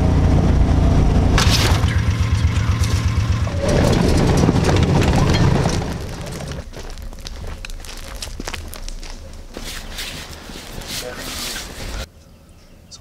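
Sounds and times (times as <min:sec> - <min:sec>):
vehicle engine rumbling: 0:00.0 - 0:12.1
vehicle body knocking and rattling: 0:01.4 - 0:06.7
sharp crack: 0:01.4 - 0:09.5
tyres crunching over stones: 0:01.4 - 0:12.1.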